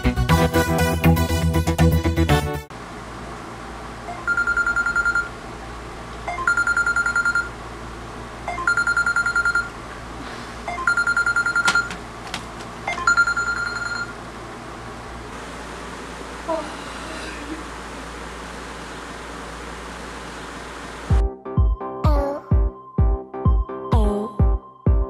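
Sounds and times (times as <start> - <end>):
smartphone alarm beeping: 4.1 - 5.3, 6.3 - 7.5, 8.5 - 9.7, 10.7 - 11.9, 12.9 - 14.1.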